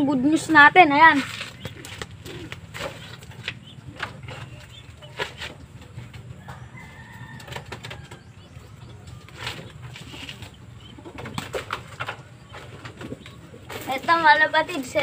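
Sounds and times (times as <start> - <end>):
pigeons fluttering wings: 1.0 - 5.8, 9.3 - 15.0.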